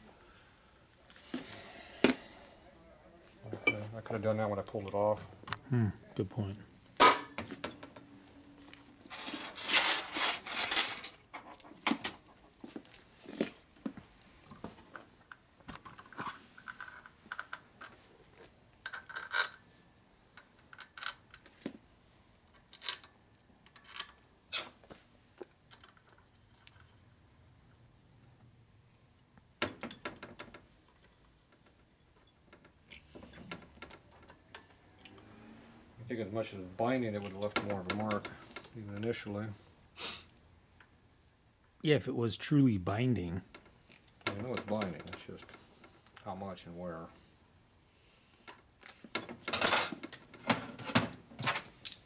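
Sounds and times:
metal parts clinking and rattling: 0:09.1 - 0:14.6, 0:18.8 - 0:21.6, 0:22.5 - 0:24.7, 0:49.1 - 0:52.0.

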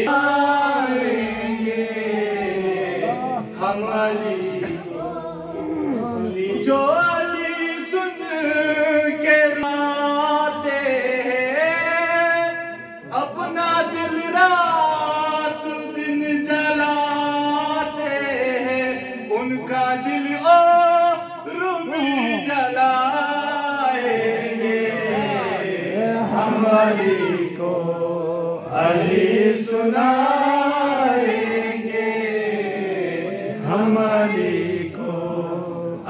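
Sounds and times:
man singing into a microphone: 0:06.1 - 0:25.2.

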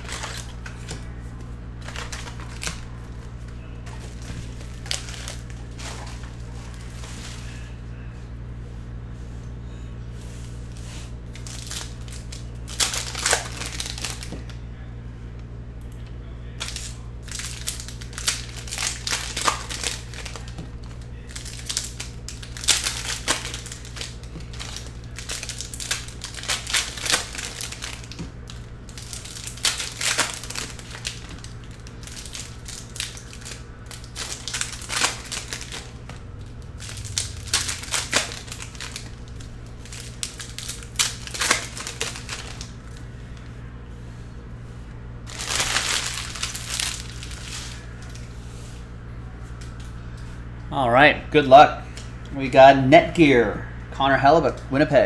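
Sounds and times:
foil wrappers crinkling and tearing: 0:00.0 - 0:07.8, 0:10.4 - 0:14.6, 0:16.5 - 0:43.5, 0:45.2 - 0:48.3.

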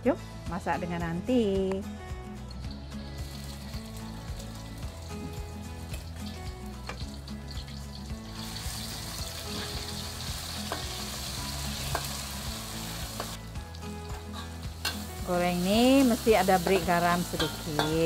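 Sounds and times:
paste sizzling in hot oil: 0:02.6 - 0:18.0
spatula knocking against wok: 0:11.9 - 0:12.2, 0:16.6 - 0:18.0.

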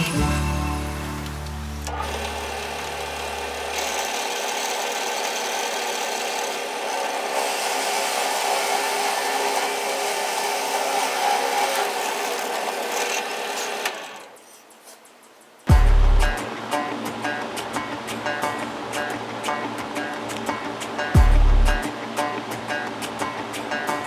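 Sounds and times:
drill press motor hum: 0:01.7 - 0:14.3
drill bit rasping wood: 0:02.0 - 0:14.2.

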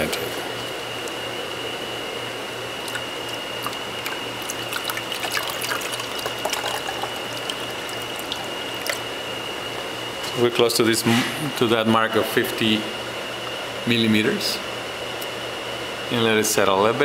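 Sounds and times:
water pouring into a tank: 0:02.9 - 0:09.0.

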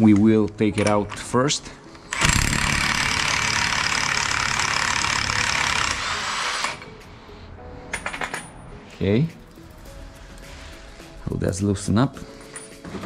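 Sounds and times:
impact wrench hammering: 0:02.2 - 0:06.9.

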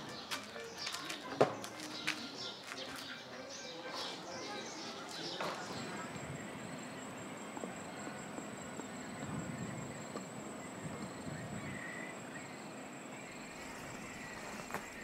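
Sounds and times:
insects droning high-pitched: 0:00.0 - 0:15.0
low open-air rumble: 0:05.6 - 0:15.0.

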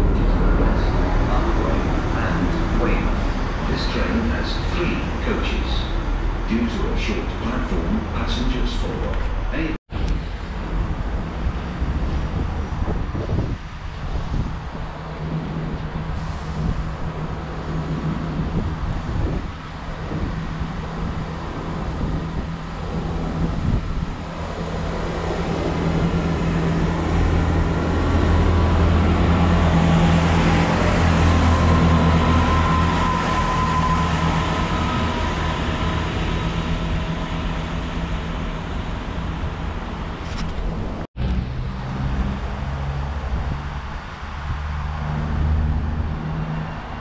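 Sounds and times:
diesel train passing: 0:00.0 - 0:47.0.

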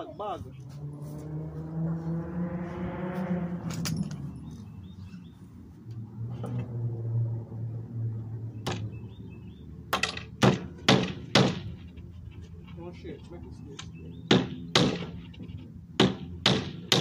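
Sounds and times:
hammer driving nails into wood: 0:10.0 - 0:11.7, 0:14.3 - 0:15.1, 0:16.0 - 0:17.0.

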